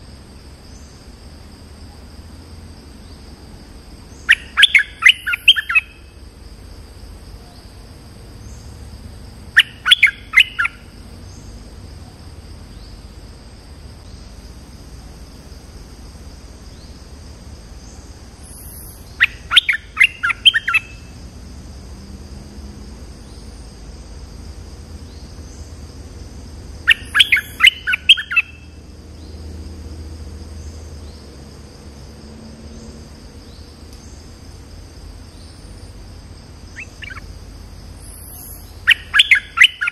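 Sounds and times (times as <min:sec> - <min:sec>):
high-pitched insect drone: 0:00.0 - 0:39.9
bird singing quick notes: 0:26.9 - 0:28.6.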